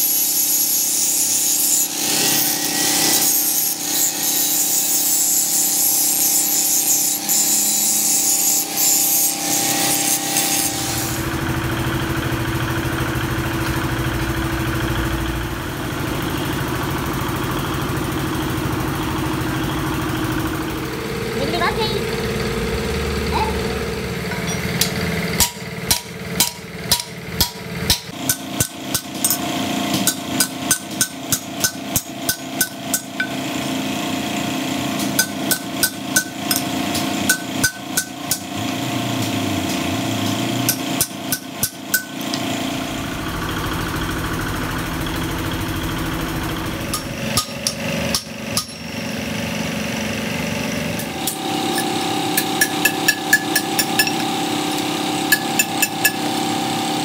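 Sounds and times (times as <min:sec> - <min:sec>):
steady engine-like hum: 0:04.6 - 0:57.0
hammer striking steel strip: 0:24.3 - 0:33.5, 0:35.0 - 0:42.4, 0:46.9 - 0:49.0, 0:51.0 - 0:56.4.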